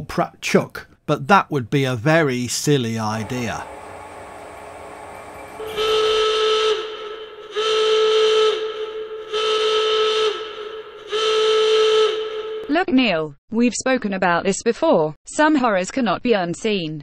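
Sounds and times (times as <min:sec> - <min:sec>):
warning horn blasts: 0:03.1 - 0:12.8.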